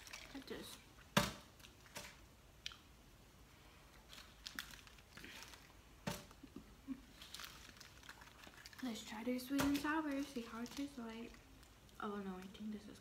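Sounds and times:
chewing: 0:06.9 - 0:09.0.

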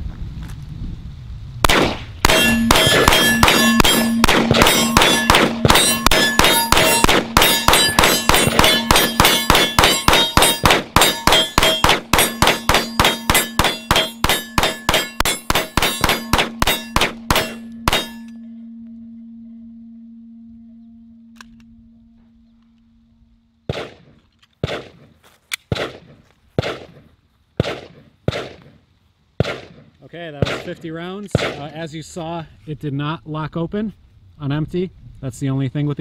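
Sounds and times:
pistol firing rapidly: 0:01.7 - 0:18.2, 0:23.7 - 0:25.0, 0:25.7 - 0:27.0, 0:27.6 - 0:28.7, 0:29.4 - 0:29.8, 0:30.4 - 0:31.7
steady ringing tone: 0:02.2 - 0:24.2.

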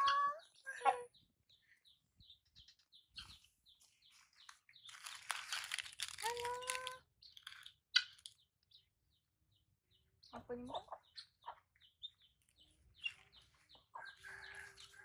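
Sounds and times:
plastic packet crinkling and tearing: 0:04.4 - 0:08.3.

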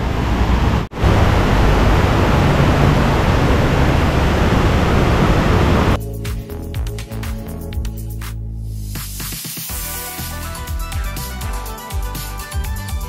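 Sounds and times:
background music with beat: 0:06.0 - 0:13.0.

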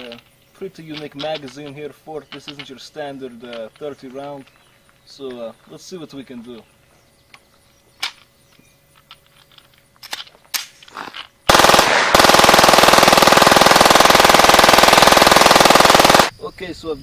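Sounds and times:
automatic pistol rapid burst: 0:11.5 - 0:16.3.

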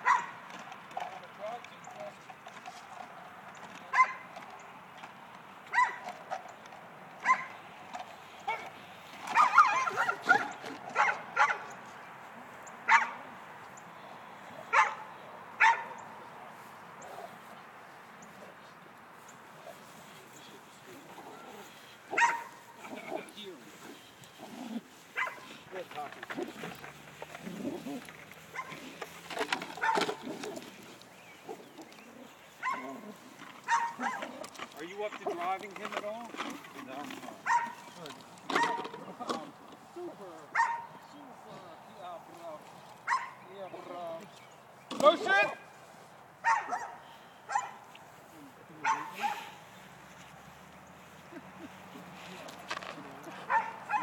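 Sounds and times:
dog barking: 0:00.0 - 0:00.4, 0:03.9 - 0:04.2, 0:05.7 - 0:06.1, 0:07.2 - 0:07.5, 0:08.5 - 0:08.7, 0:09.3 - 0:11.7, 0:12.9 - 0:13.2, 0:14.7 - 0:16.0, 0:22.1 - 0:23.0, 0:25.2 - 0:25.5, 0:28.5 - 0:28.8, 0:29.8 - 0:30.2, 0:32.6 - 0:34.4, 0:37.4 - 0:37.8, 0:38.6 - 0:38.9, 0:40.5 - 0:40.9, 0:43.1 - 0:43.4, 0:46.4 - 0:47.8, 0:48.8 - 0:49.6, 0:53.5 - 0:54.0.

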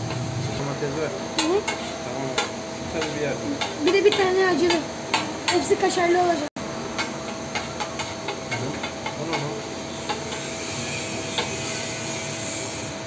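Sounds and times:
filling sizzling on a griddle: 0:00.0 - 0:13.0
metal spatula scraping a griddle: 0:01.6 - 0:02.0, 0:07.5 - 0:13.0.

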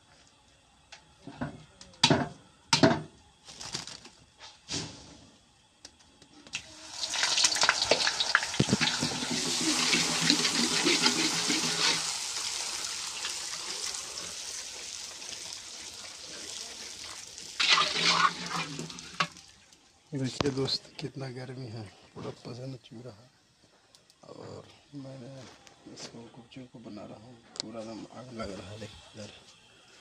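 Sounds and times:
frying in hot oil sizzling: 0:06.5 - 0:20.7.

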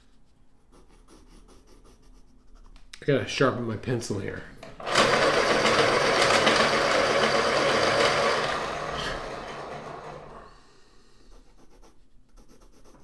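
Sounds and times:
pencil scratching on paper: 0:00.0 - 0:02.8, 0:11.3 - 0:13.0
electric pencil sharpener grinding: 0:04.7 - 0:10.6.

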